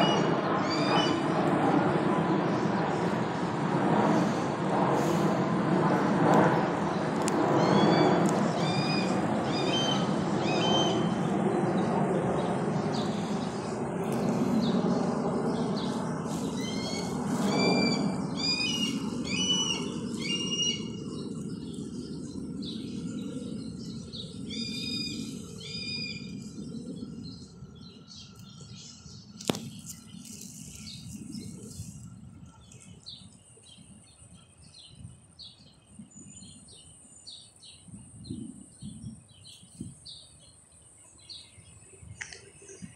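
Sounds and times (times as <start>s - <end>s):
low rumble: 0.0s - 33.3s
small birds chirping: 7.0s - 42.9s.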